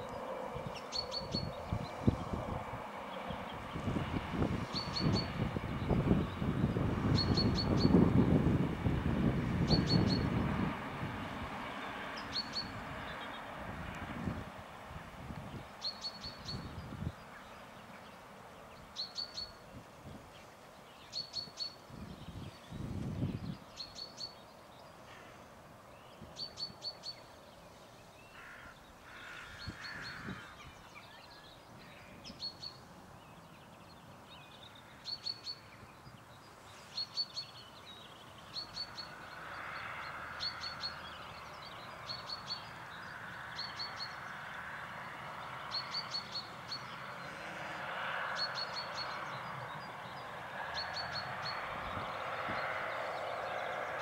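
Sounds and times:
small bird calling: 28.2s - 32.8s.

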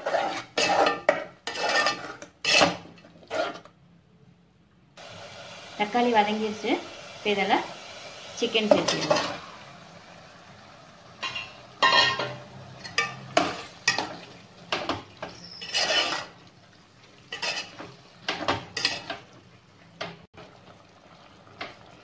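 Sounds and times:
metal spoon scraping metal pot: 0.0s - 3.7s, 15.2s - 16.4s, 17.3s - 17.9s.

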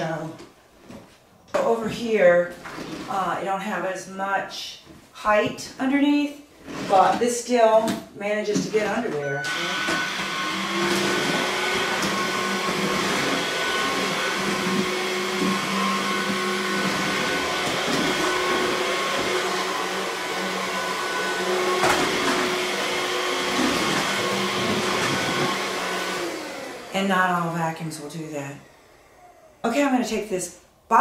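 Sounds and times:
stick vacuum motor whine: 9.2s - 27.5s.

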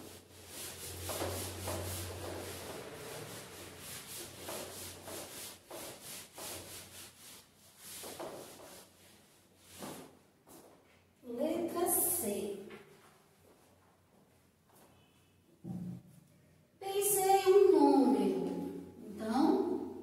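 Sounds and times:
eraser rubbing on whiteboard: 0.0s - 10.6s.

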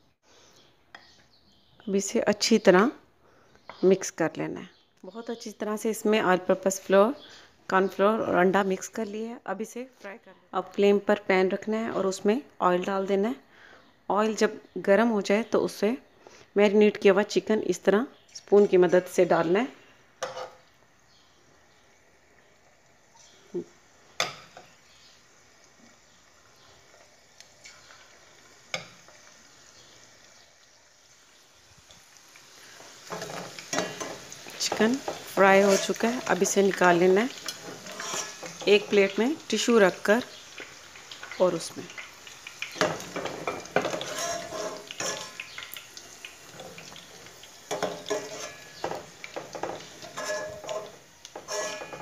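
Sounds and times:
chicken frying in hot oil: 14.2s - 52.0s
metal skimmer scraping a pot: 35.5s - 36.1s, 37.6s - 38.6s, 43.4s - 45.4s, 48.0s - 48.8s, 49.6s - 52.0s.

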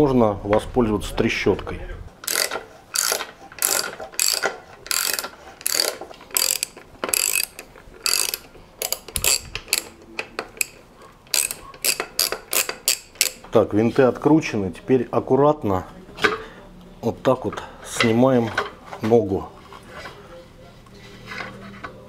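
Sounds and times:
socket ratchet clicking: 2.2s - 13.4s.

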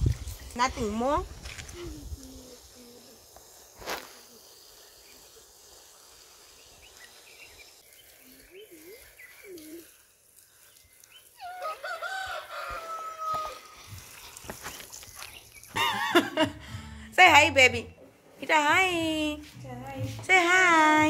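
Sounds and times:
rooster crowing: 11.4s - 13.8s.

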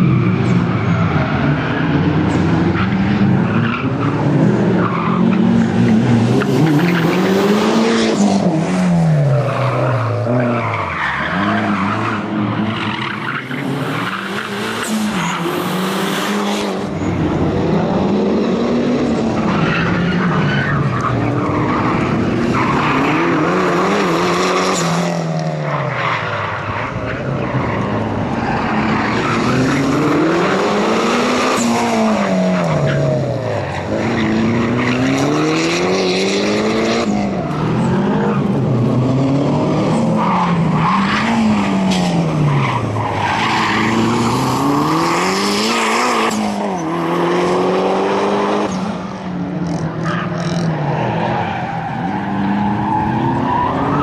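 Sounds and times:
car engine revving hard: 27.9s - 42.9s, 43.7s - 51.2s.

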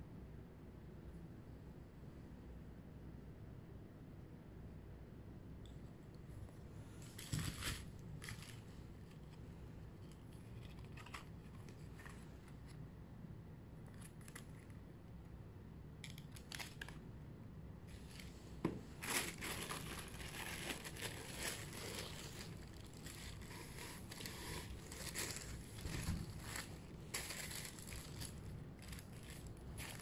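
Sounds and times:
tissue paper crinkling: 6.8s - 12.8s, 17.9s - 30.0s.

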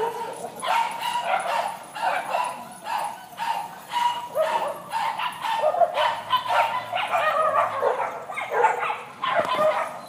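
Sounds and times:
small dogs barking and yapping: 0.0s - 10.0s.

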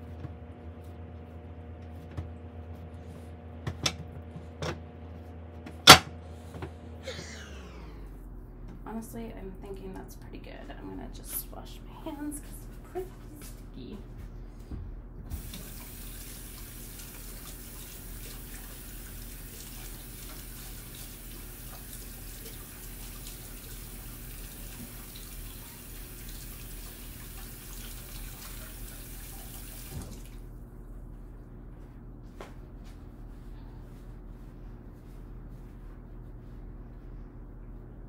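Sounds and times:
low hum: 0.0s - 15.3s
hands washing: 15.3s - 30.5s.

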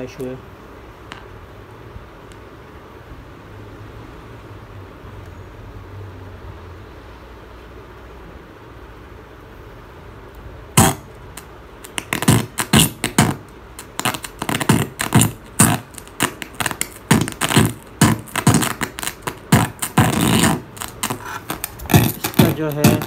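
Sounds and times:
song cutting in and out: 11.9s - 23.0s.

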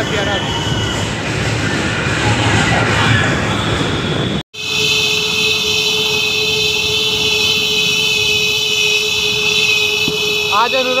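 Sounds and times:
rushing wind and road noise: 0.0s - 4.4s
vehicle horn blaring: 4.6s - 11.0s.

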